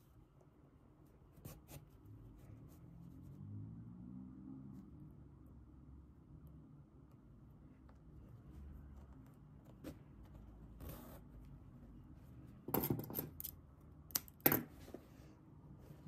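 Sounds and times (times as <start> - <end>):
faint rustling of yarn: 7.2 - 12.7.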